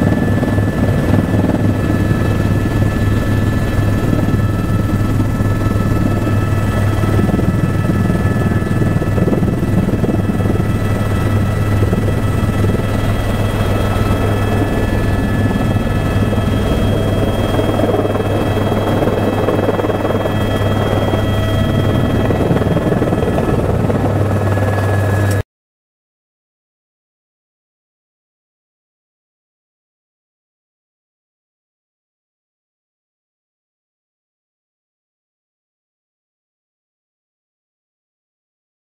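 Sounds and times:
helicopter drone from cabin: 0.0 - 25.4
high whining tones: 0.1 - 25.4.

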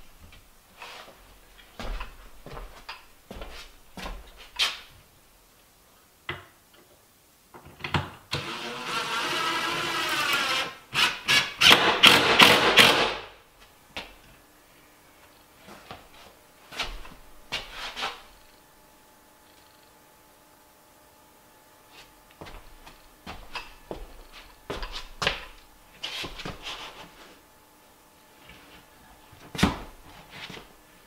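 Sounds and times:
cordless drill driving screw: 8.4 - 11.8.

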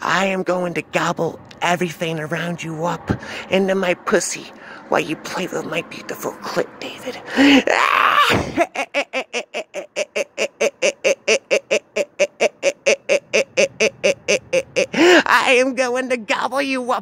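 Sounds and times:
man cackling: 7.2 - 15.5.

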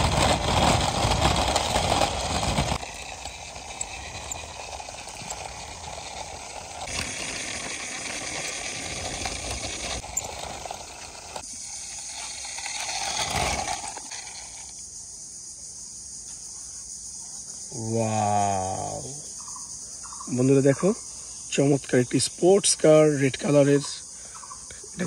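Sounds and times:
toy wheels rolling on concrete: 0.0 - 15.3, 21.6 - 25.0.

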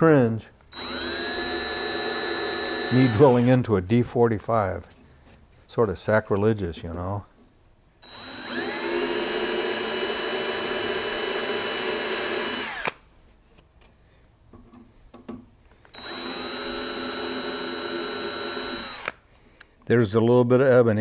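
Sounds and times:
small electric drill boring: 0.7 - 3.5, 8.0 - 13.0, 15.9 - 19.2.

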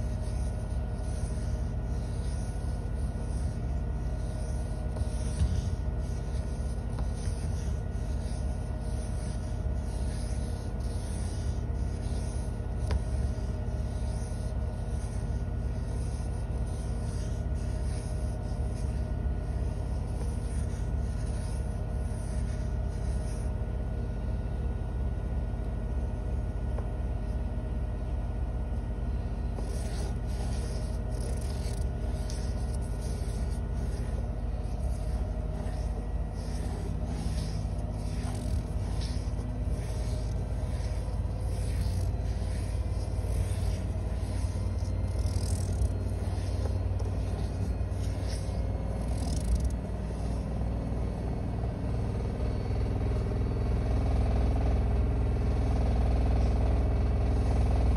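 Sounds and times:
pencil scratching on paper: 0.0 - 24.4, 29.1 - 57.9
washing machine spinning: 28.3 - 50.6.

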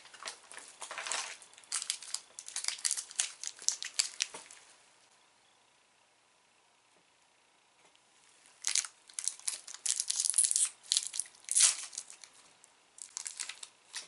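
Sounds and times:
snack packaging crinkling: 0.0 - 4.6, 8.6 - 12.4, 13.0 - 14.0.

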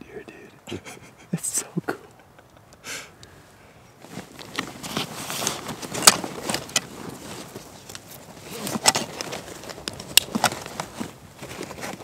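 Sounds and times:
clicks scuffs and rustling: 4.0 - 12.0.

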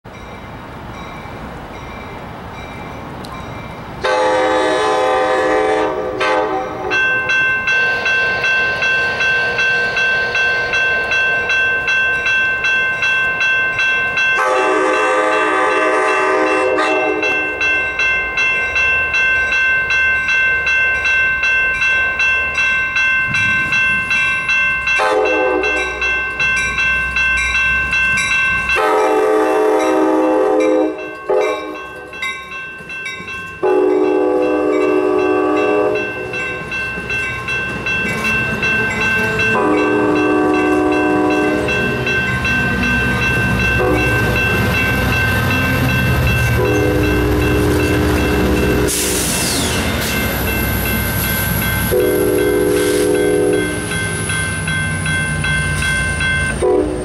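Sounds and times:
grade-crossing bell ringing: 0.0 - 57.0
train rumbling: 0.1 - 57.0
train horn blasts: 4.0 - 7.0, 14.4 - 17.4, 25.0 - 26.0, 28.7 - 31.8, 33.6 - 36.1, 39.2 - 41.8, 43.7 - 44.4, 46.5 - 49.7, 51.9 - 53.7, 56.6 - 57.0.

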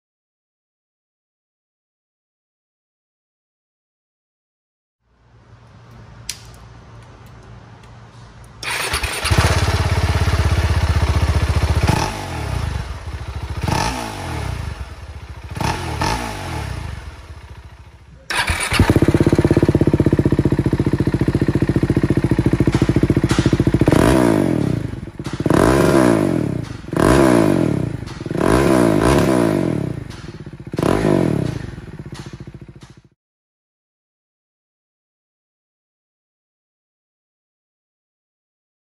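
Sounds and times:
motorcycle engine idling and revving: 8.6 - 33.2.

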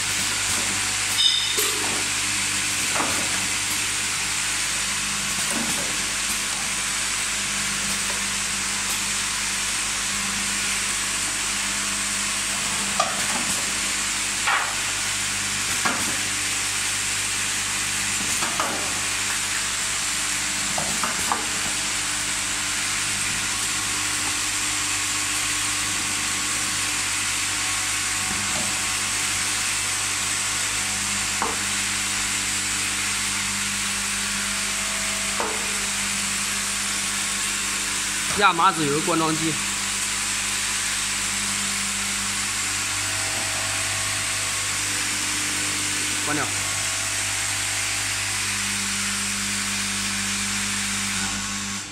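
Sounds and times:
low conveyor motor hum: 0.0 - 51.9
glass bottles clinking: 1.2 - 1.9.

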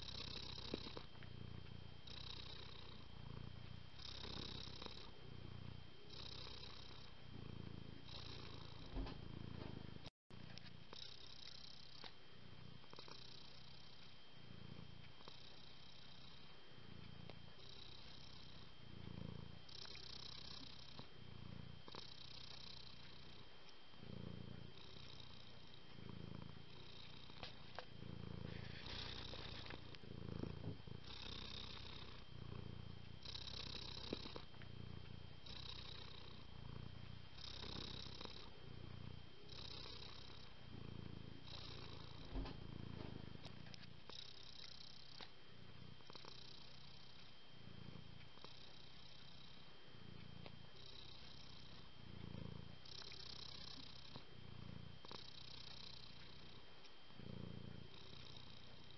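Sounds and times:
cat purring: 0.0 - 58.9.

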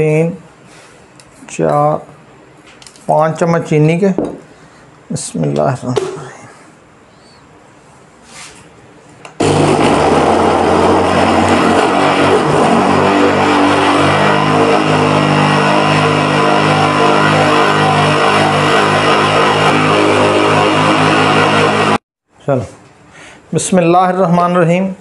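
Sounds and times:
blender motor running: 9.4 - 22.0.

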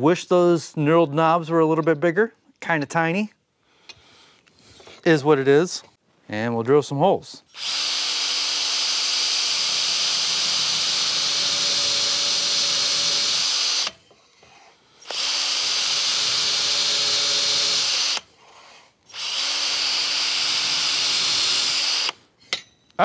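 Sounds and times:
cordless drill boring into wood: 7.5 - 14.0, 15.0 - 18.3, 19.1 - 22.2.

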